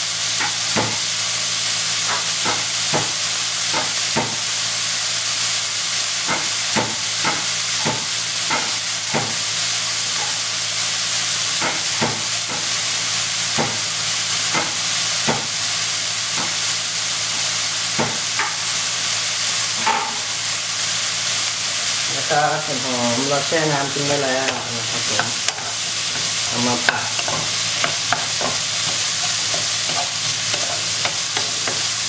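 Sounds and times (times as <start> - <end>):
food sizzling in a wok: 0.0 - 32.0
sharp pops of frying: 0.4 - 1.1, 2.0 - 4.6, 6.2 - 10.5, 11.4 - 12.8, 13.4 - 15.6, 16.2 - 16.7, 17.3 - 18.9, 19.7 - 20.5, 24.0 - 32.0.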